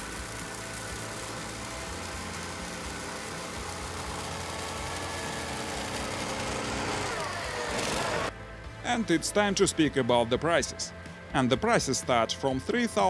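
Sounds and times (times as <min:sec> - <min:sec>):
mini atv engine revving: 0:00.0 - 0:08.3.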